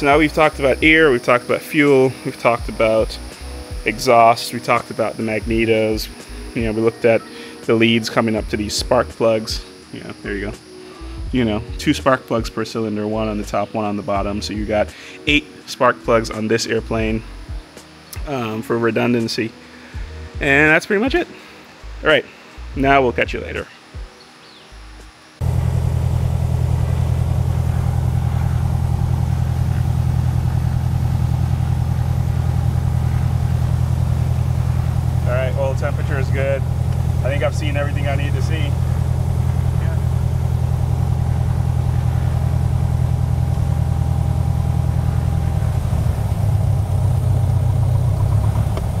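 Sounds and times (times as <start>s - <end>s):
aircraft engine running: 0.0s - 10.8s, 25.4s - 49.0s.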